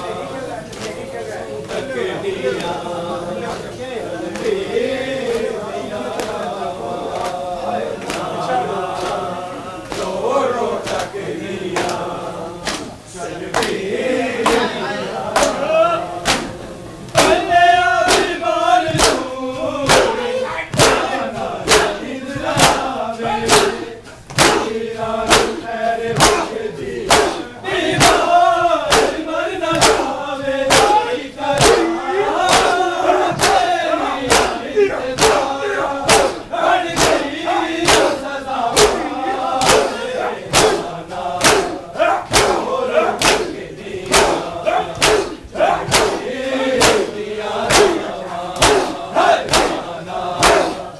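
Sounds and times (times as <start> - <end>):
men chanting in unison: 0.0 - 50.9
hands slapping chests: 12.6 - 13.8, 16.2 - 16.6, 18.1 - 19.3, 19.9 - 24.7, 25.3 - 25.6, 26.2 - 26.5, 27.1 - 27.4, 28.9 - 30.1, 30.7 - 31.0, 31.6 - 32.8, 33.4 - 33.7, 34.3 - 34.6, 36.1 - 38.2, 38.8 - 46.2, 46.8 - 47.1, 47.7 - 48.0, 48.6 - 50.8.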